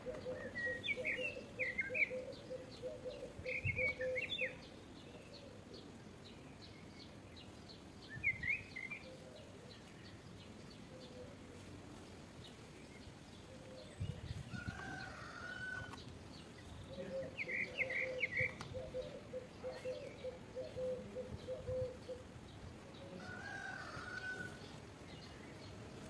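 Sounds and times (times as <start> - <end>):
rooster crowing: 14.6 - 16.0, 23.1 - 24.6.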